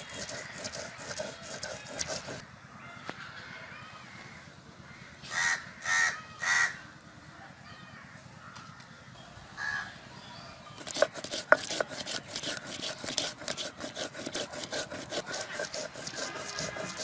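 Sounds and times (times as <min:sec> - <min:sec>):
stone roller scraping grinding stone: 0:00.0 - 0:02.4, 0:10.8 - 0:17.0
crow cawing: 0:04.9 - 0:06.8.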